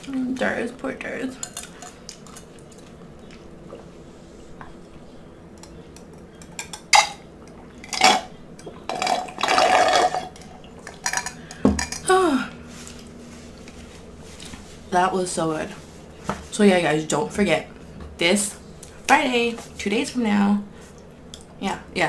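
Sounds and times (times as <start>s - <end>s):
ice clinking: 7.8s - 12.0s.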